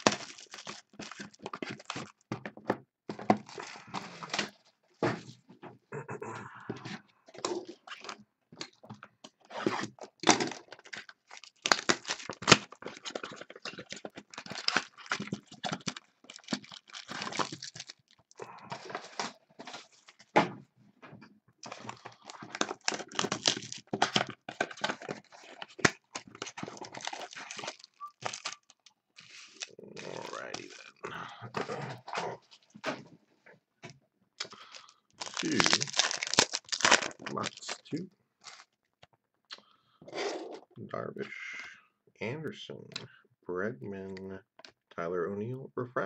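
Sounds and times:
foil packs torn and crinkled: 0.0 - 2.3, 3.3 - 4.6, 9.4 - 20.3, 21.6 - 31.0, 34.4 - 38.8.

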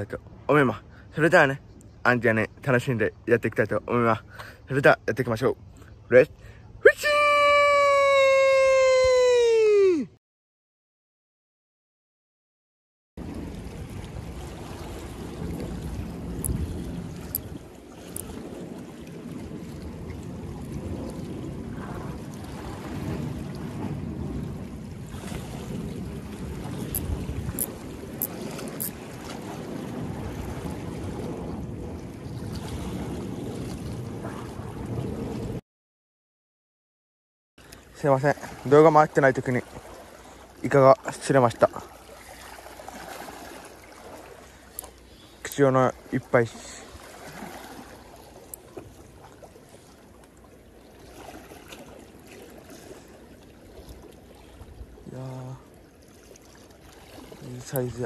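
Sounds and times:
water washing against seawall: 13.2 - 35.6, 37.8 - 58.0
wind on microphone: 13.2 - 35.6
fishing reel clicks: 26.9 - 28.9.

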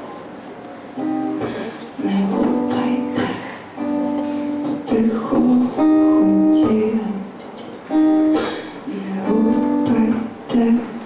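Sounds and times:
acoustic guitar: 0.0 - 11.0
woman singing: 1.4 - 7.4, 8.3 - 11.0.

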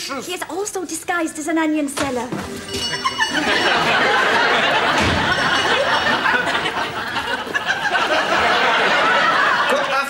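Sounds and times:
audience laughing: 2.9 - 10.0.

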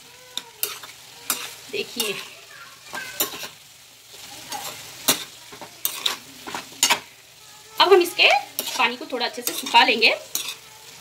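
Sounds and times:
food sizzling in a pan: 0.0 - 11.0
metal spoon scraping a pan: 0.3 - 7.2, 7.8 - 11.0.

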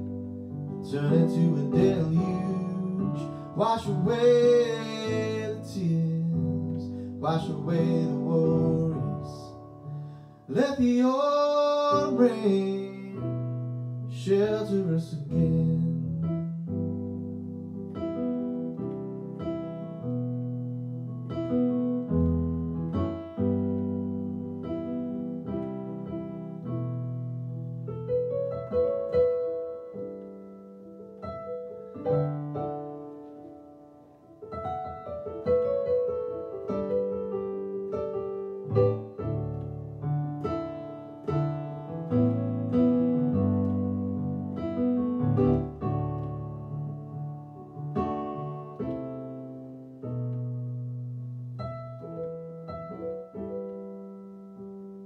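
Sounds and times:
solo piano chords and melody: 0.0 - 55.0.

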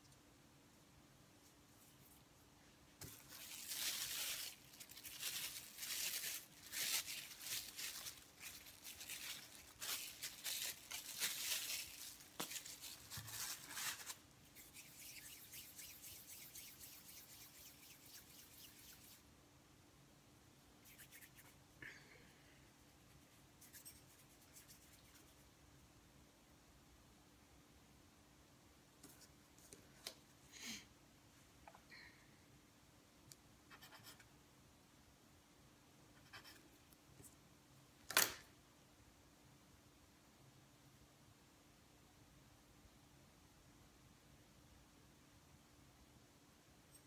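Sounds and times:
faint steady hiss: 0.0 - 47.0
plastic wrapping rustling: 3.0 - 19.2.

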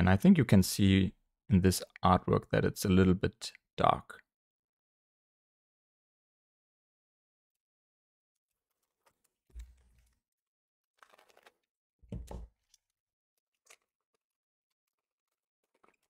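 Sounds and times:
foil pack and cards crinkling: 11.0 - 11.7, 14.9 - 16.0.

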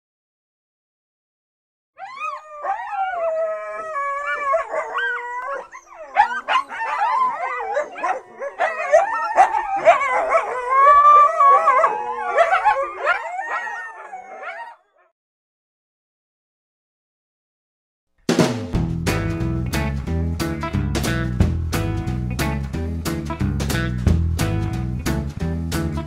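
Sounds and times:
canines howling: 2.0 - 15.1.

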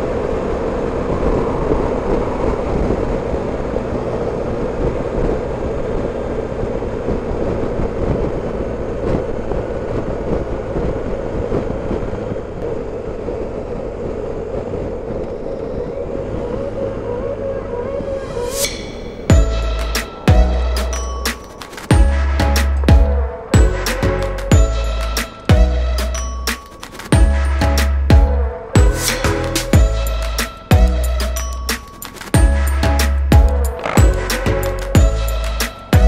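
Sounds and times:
wind noise on microphone: 0.0 - 26.4
motorcycle engine cruising: 0.0 - 36.0
road noise: 0.0 - 36.0.

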